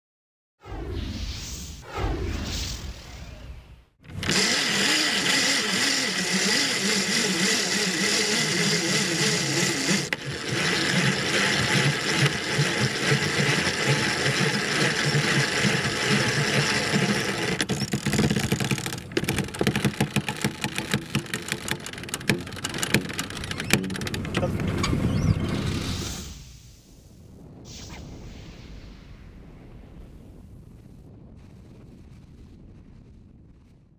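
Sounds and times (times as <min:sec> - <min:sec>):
winch mechanical whir: 0:04.0 - 0:26.1
winch fast clicks: 0:04.1 - 0:26.2.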